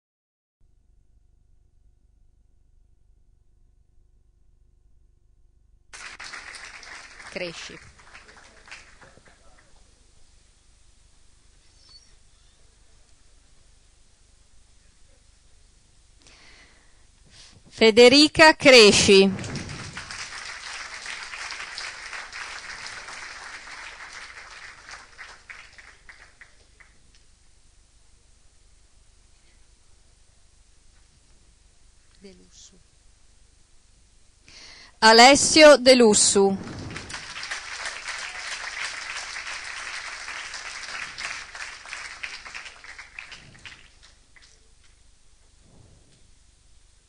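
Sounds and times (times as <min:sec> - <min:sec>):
audience applauding: 0:06.0 - 0:10.0, 0:19.1 - 0:27.0, 0:36.6 - 0:44.8.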